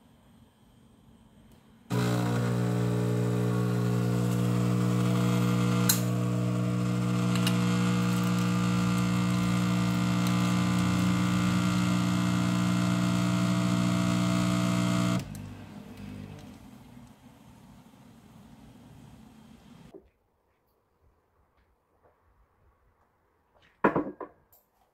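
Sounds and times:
coffee machine pump buzzing: 1.9 - 16.5.

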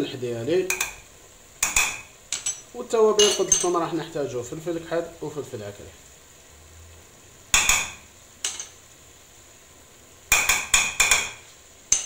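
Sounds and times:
spoon knocking on steel pot: 0.7 - 1.0, 1.6 - 2.6, 7.5 - 8.7, 10.3 - 12.0.

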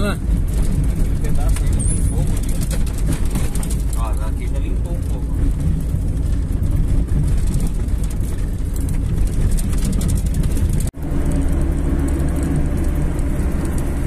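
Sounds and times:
car engine and tyre rumble: 0.0 - 14.0
small ticks and knocks: 2.3 - 10.9.

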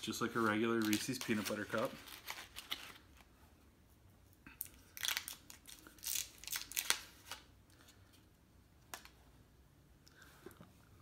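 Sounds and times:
paper liner crinkling and tearing: 0.0 - 3.3, 4.7 - 7.5.

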